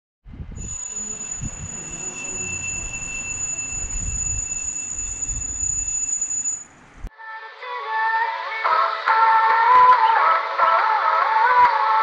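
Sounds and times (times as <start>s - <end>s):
alarm clock ringing: 0.6s - 6.8s.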